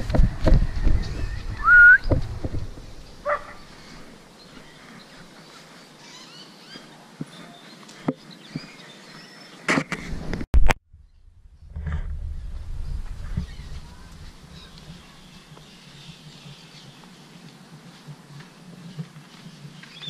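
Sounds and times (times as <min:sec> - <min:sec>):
whistle-like note: 0:01.6 - 0:02.1.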